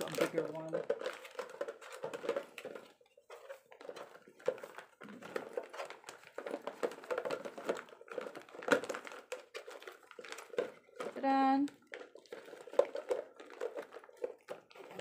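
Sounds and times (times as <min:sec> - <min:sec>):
plastic bags crinkling and rustling: 0:00.0 - 0:15.0.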